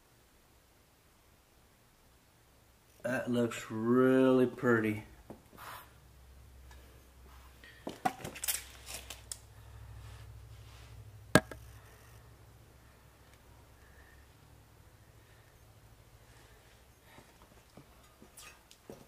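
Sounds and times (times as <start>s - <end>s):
faint low hum: 0.0s - 19.0s
camera handling knocks and taps: 11.4s - 11.6s.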